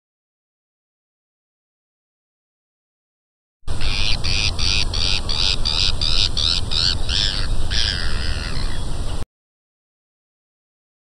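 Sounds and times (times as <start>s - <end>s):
seagull calling: 3.7s - 9.0s.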